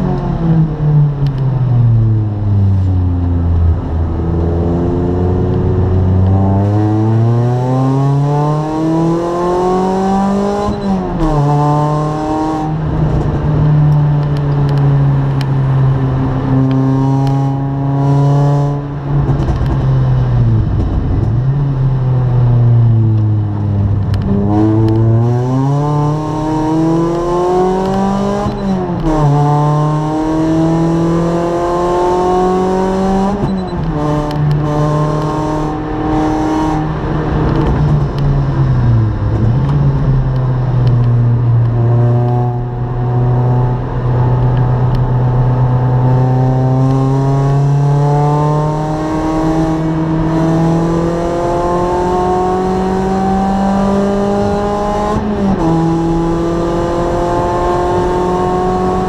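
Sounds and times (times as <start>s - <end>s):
race car engine from inside cabin: 0.0s - 59.0s.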